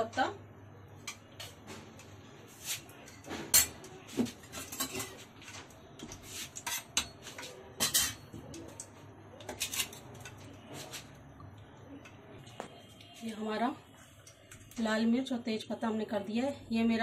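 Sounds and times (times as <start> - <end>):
metal cookware clanking: 3.0 - 3.9, 4.5 - 5.2, 6.6 - 8.9, 9.5 - 10.4.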